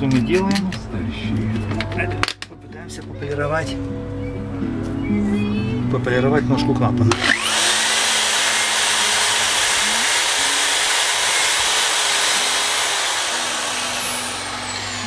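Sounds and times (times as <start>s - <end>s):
electric drill whining: 7.1s - 15.0s.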